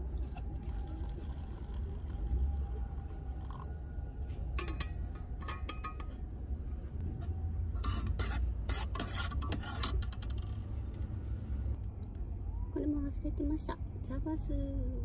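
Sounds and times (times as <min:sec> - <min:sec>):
steady low rumble: 0:00.0 - 0:07.9.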